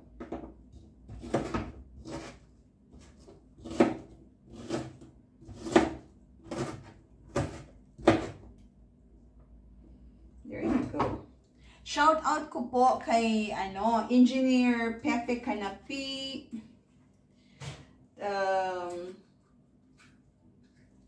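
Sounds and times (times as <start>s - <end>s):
knife chopping on cutting board: 1.1s - 2.4s, 3.0s - 8.5s.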